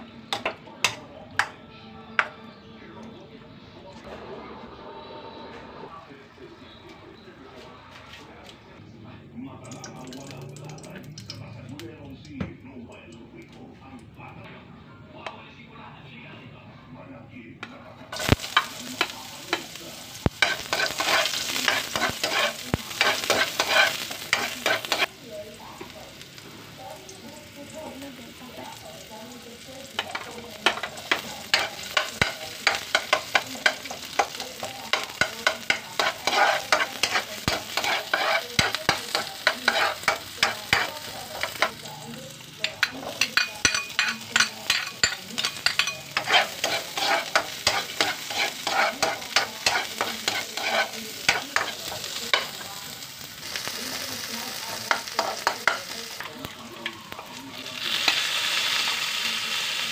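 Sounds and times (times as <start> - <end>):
garlic and onion sizzling in oil: 18.0 - 59.9
utensil stirring against wok: 18.1 - 59.9.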